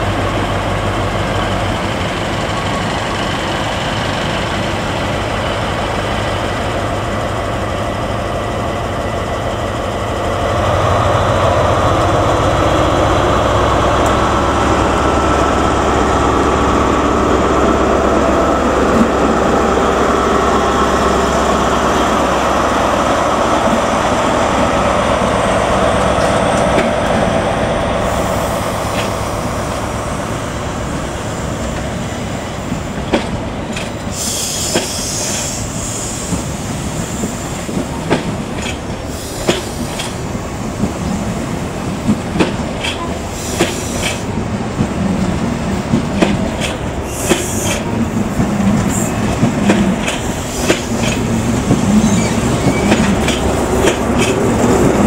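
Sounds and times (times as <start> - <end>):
diesel locomotive engine: 0.0 - 55.0
train wheels clicking over rail joints: 24.9 - 55.0
train wheel squeals: 34.1 - 37.6, 47.0 - 47.9, 50.1 - 53.4.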